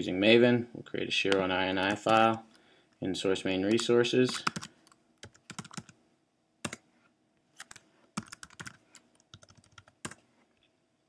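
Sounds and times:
computer keyboard typing: 0:01.3 - 0:02.4, 0:03.7 - 0:06.0, 0:07.6 - 0:10.2.

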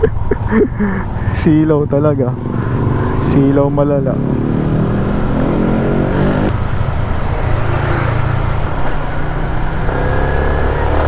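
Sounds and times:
wind and road noise: 0:00.0 - 0:11.0
motorcycle engine revving: 0:02.3 - 0:11.0.

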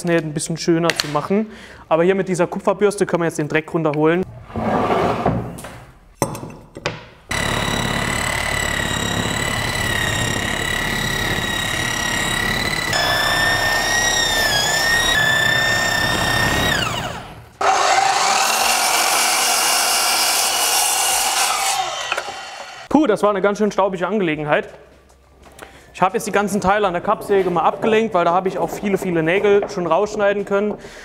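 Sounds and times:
mitre saw motor: 0:07.3 - 0:22.9
wire brush machine whining: 0:07.3 - 0:22.9.

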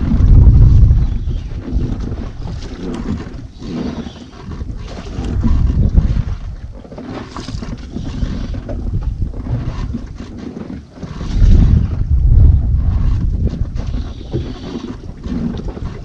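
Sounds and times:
boat and sea noise: 0:00.0 - 0:16.0
wind buffeting microphone: 0:00.0 - 0:16.0.

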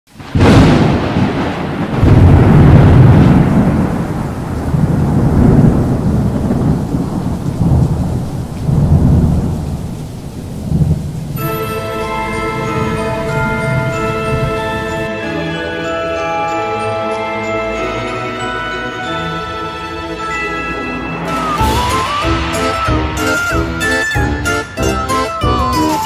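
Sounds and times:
rolling thunder: 0:00.1 - 0:15.1, 0:21.3 - 0:26.0
steady rain: 0:00.1 - 0:26.0
music with held tones: 0:11.4 - 0:26.0.

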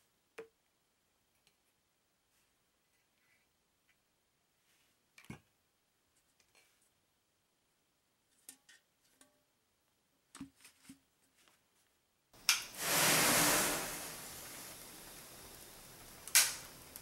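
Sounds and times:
match heads igniting and fizzing: 0:12.4 - 0:17.0
power-strip switch click: 0:16.2 - 0:16.7.

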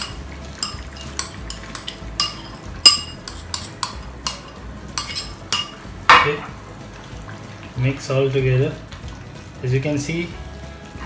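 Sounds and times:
metal spoon clinking on bowl: 0:00.0 - 0:06.4.

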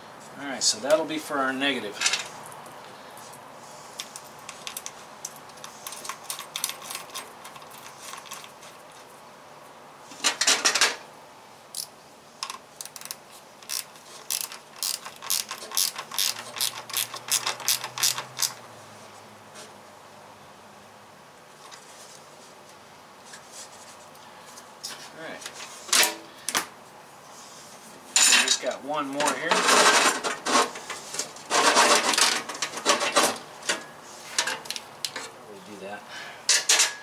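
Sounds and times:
hand ratchet clicking: 0:11.8 - 0:18.6.

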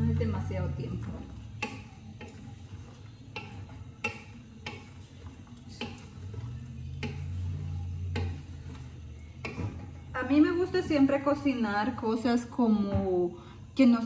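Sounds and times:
wooden spoon knocking against pot: 0:01.0 - 0:02.6, 0:03.2 - 0:05.1, 0:05.7 - 0:06.2, 0:06.9 - 0:08.6, 0:09.4 - 0:10.0.

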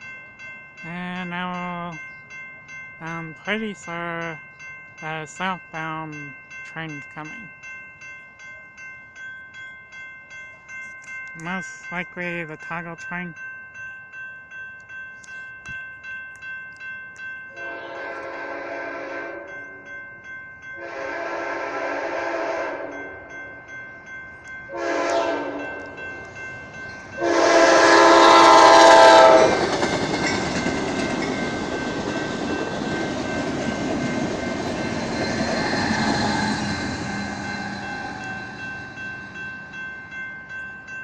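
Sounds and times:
crossing bell ringing: 0:00.0 - 0:41.0
train horn blasts: 0:17.6 - 0:19.6, 0:20.8 - 0:23.1, 0:24.7 - 0:25.8, 0:27.2 - 0:29.7
train rushing past on rails: 0:20.7 - 0:41.0.

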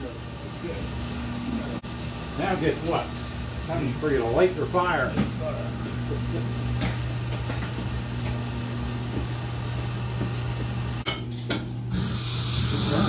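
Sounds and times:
fan and pump humming: 0:00.0 - 0:13.0.

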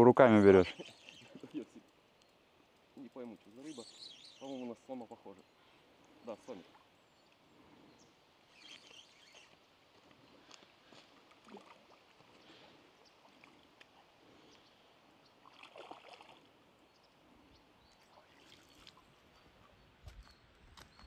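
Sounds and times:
fish splashing in water: 0:15.4 - 0:16.5.

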